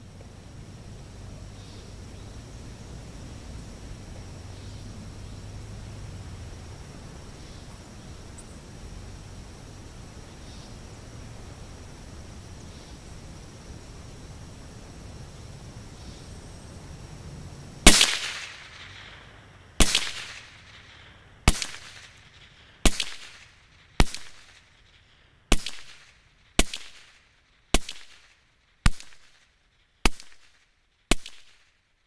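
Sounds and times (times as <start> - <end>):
rifle shots with echo: 17.9 - 22.2, 22.8 - 24.6, 25.5 - 27.2.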